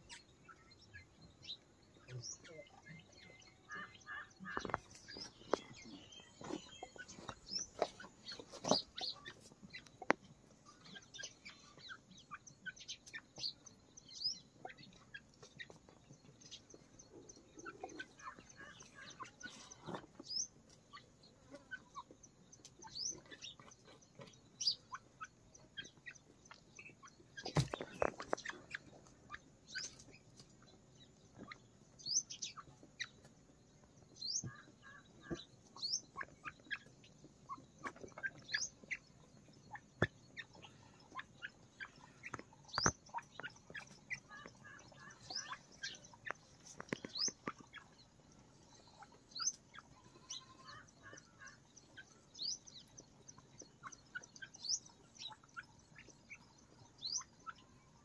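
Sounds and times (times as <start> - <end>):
soft clucks: 2.1 - 13.5, 39.7 - 48.0
beaks tapping on earth: 46.2 - 47.6.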